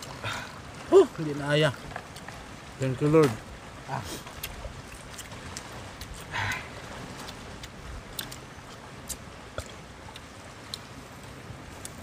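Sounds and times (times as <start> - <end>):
breathy snort: 6.3 - 6.7
small clicks of eating by hand: 7.2 - 10.9.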